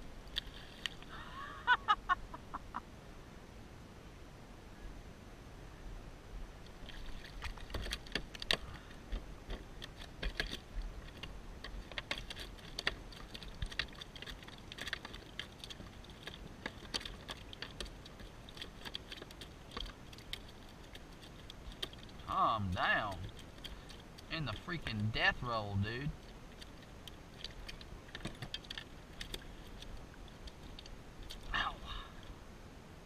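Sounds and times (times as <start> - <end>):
fish thrashing on plastic deck: 6.7 - 31.5.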